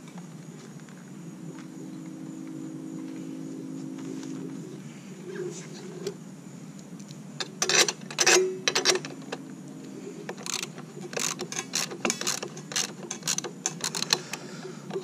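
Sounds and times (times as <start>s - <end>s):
socket ratchet clicking: 7.4s - 9.4s, 10.3s - 15.0s
metal tools clinking: 7.5s - 9.2s, 10.4s - 14.2s.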